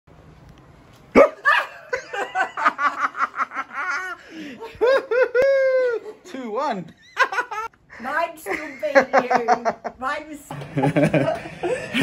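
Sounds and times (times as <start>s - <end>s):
woman laughing and squealing: 1.2s - 6.2s.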